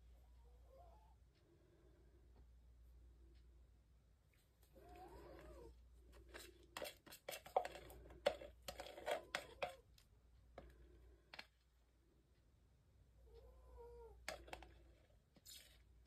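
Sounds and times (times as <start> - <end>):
stick knocking in plastic cup: 6.3 - 9.8.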